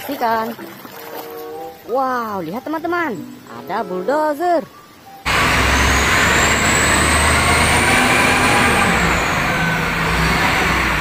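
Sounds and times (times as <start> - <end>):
diesel engine rumbling with whine: 5.2 - 11.0.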